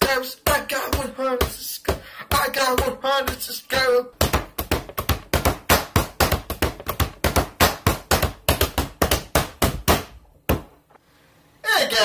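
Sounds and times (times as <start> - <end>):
fast percussive tapping beat: 4.2 - 10.1.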